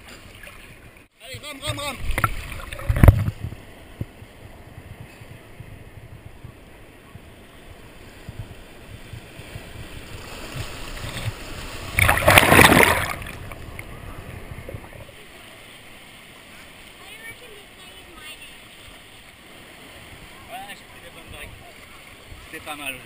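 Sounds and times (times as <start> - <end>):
surf water sloshing: 0.0 - 23.0
loud rush of water: 9.7 - 23.0.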